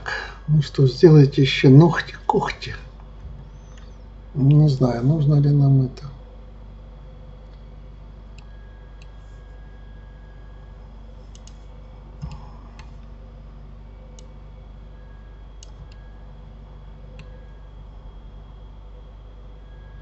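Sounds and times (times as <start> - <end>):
steady low hum: 0.0 - 20.0
computer mouse clicks: 11.3 - 13.0, 15.6 - 16.1, 17.2 - 17.4.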